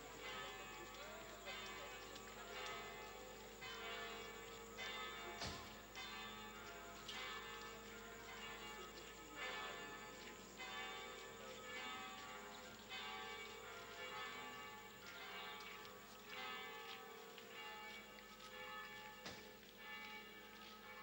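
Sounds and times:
church bells ringing: 0.0s - 21.0s.

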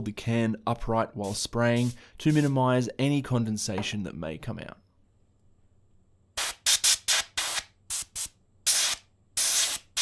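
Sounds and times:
compressed air can hissing bursts: 6.4s - 10.0s.

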